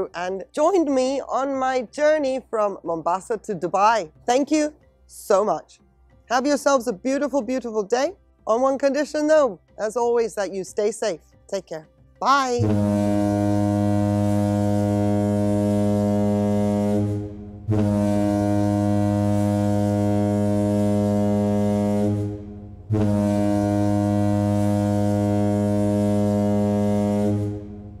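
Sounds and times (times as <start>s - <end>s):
deep ship's horn blasts: 12.6s - 28.0s.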